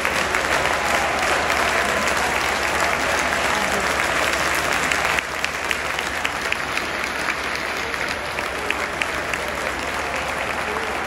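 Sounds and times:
stadium crowd applauding: 0.0s - 11.0s.

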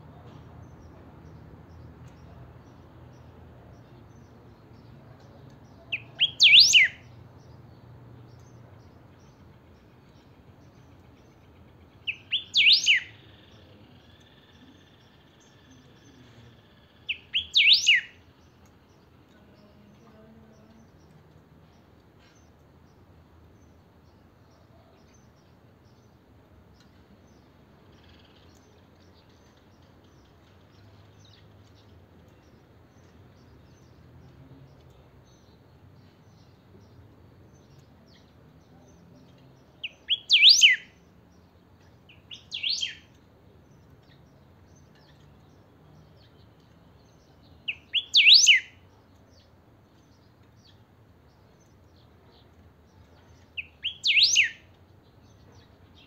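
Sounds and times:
bird singing whistled phrases: 5.9s - 7.1s, 12.1s - 13.2s, 17.1s - 18.2s, 39.8s - 41.0s, 42.1s - 43.1s, 47.7s - 48.8s, 53.6s - 54.7s.

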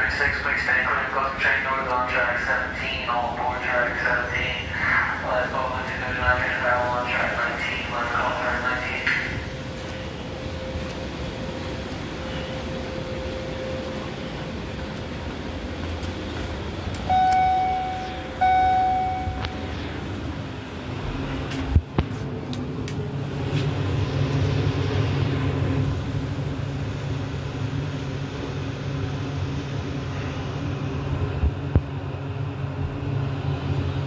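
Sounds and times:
station background noise: 0.0s - 34.0s
steady low hum: 0.0s - 34.0s
elevator arrival chime: 17.0s - 20.6s.

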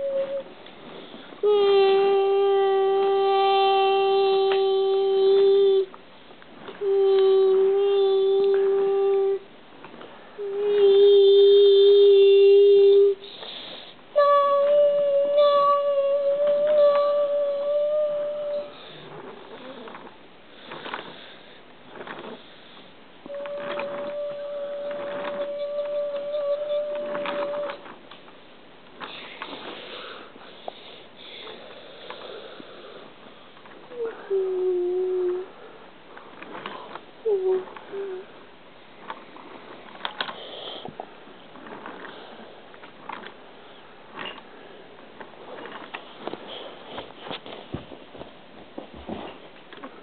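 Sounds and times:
person humming: 0.0s - 0.6s, 1.4s - 6.0s, 6.7s - 9.5s, 10.4s - 13.4s, 14.1s - 20.0s, 23.3s - 27.9s, 33.9s - 35.7s, 36.5s - 38.4s
breathy hiss: 0.0s - 5.9s, 6.7s - 14.2s, 17.2s - 23.0s, 29.0s - 38.5s, 40.1s - 42.7s
person sniffing: 29.1s - 33.1s.

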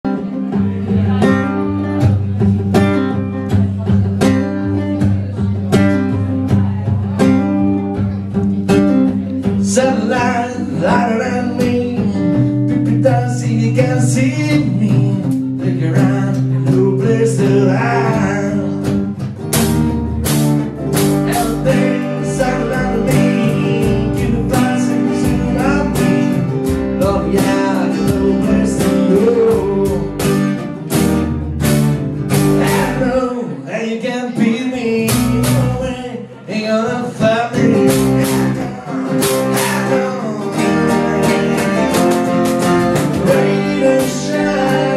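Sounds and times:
upright bass: 0.0s - 44.9s
strummed acoustic guitar: 0.1s - 44.9s
hand percussion beat: 1.0s - 33.1s, 37.1s - 44.9s
person singing: 9.3s - 19.0s, 21.0s - 30.4s, 32.5s - 44.9s.

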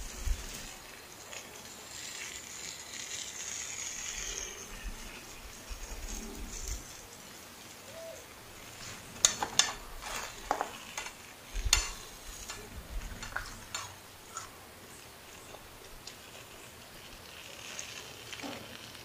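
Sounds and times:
metal spoon scraping iron plate: 8.8s - 14.5s.

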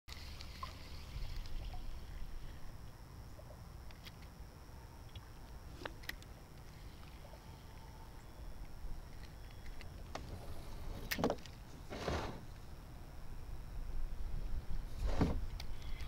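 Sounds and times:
wind rumble on microphone: 13.2s - 16.0s.

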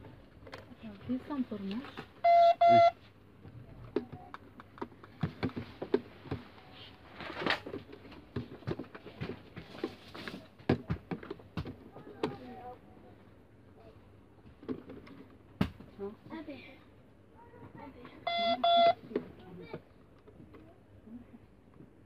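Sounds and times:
electronic beep: 2.2s - 3.0s, 18.3s - 19.0s.

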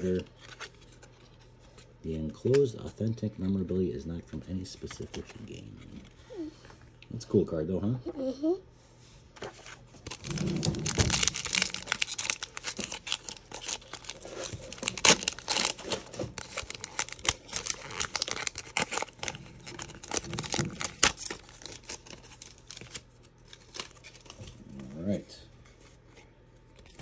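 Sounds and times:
foil wrapper tearing and crinkling: 10.0s - 24.4s.

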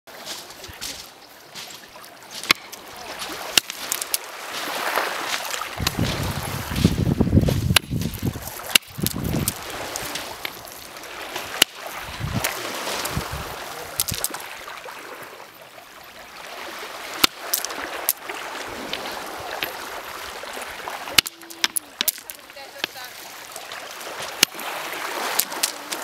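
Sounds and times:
small waves on shingle beach: 0.1s - 26.0s
hand striking stone: 2.4s - 2.8s, 3.6s - 4.2s, 7.5s - 10.6s, 21.1s - 23.0s, 25.3s - 26.0s.

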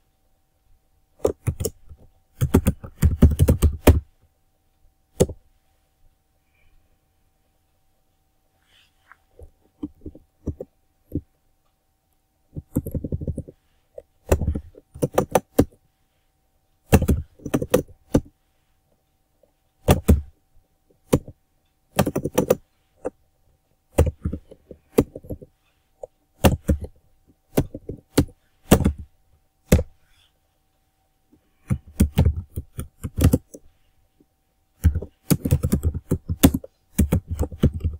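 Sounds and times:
keyboard typing clicks: 1.2s - 4.1s, 12.5s - 15.8s, 16.9s - 18.3s, 19.8s - 20.4s, 21.0s - 23.2s, 23.9s - 29.1s, 31.6s - 33.6s, 34.8s - 37.9s.

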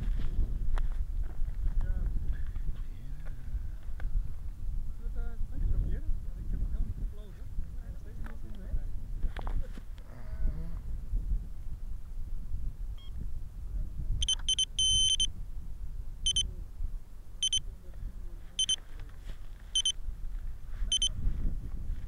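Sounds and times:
wind rumble on microphone: 0.0s - 22.0s
high-pitched electronic beeping: 14.2s - 15.3s, 17.4s - 17.6s.

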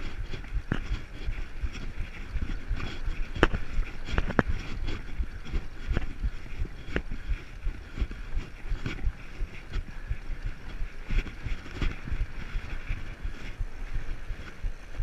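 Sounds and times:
bike tyres rumbling on snow: 0.0s - 15.0s.

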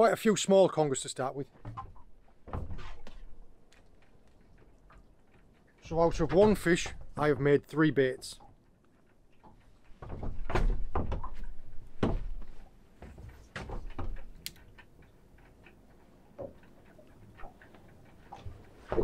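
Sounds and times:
hollow knocks and thumps on boat deck: 1.5s - 3.6s, 6.0s - 8.6s, 9.4s - 15.0s, 15.9s - 19.0s
click: 14.4s - 14.9s.

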